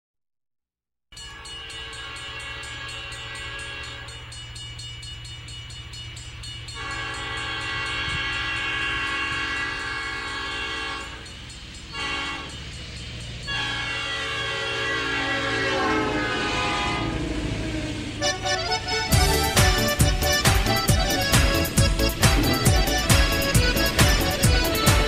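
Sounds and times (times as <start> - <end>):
train clatter and rumble: 1.2 - 25.0
train horn blasts: 1.6 - 4.2, 6.8 - 11.3, 11.9 - 12.6, 13.4 - 17.5.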